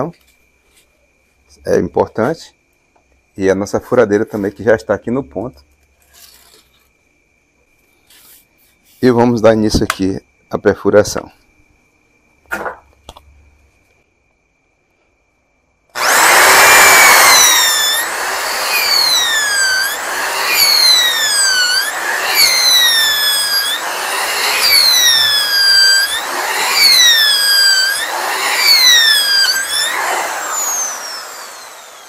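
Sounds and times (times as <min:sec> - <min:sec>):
electric drill boring into wood: 0:15.9 - 0:32.0.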